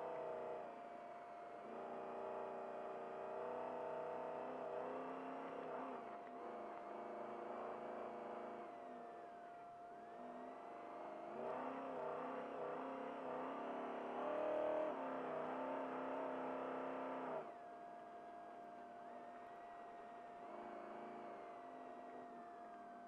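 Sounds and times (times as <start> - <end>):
truck engine revving: 11.2 - 17.5.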